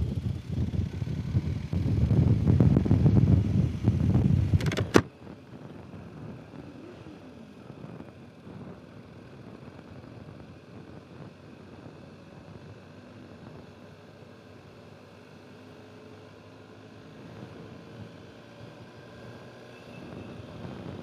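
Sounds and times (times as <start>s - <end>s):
gusty wind on microphone: 0.0s - 6.9s, 20.0s - 21.0s
motorcycle riding rumble: 0.0s - 21.0s
sharp click: 4.6s - 5.1s.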